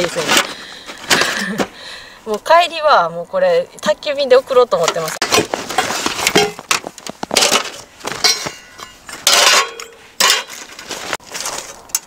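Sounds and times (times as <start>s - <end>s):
canvas bag rustling: 0.0s - 1.6s
metal stove parts clinking: 4.8s - 11.0s
metal scrape: 5.2s - 6.6s, 7.3s - 12.0s.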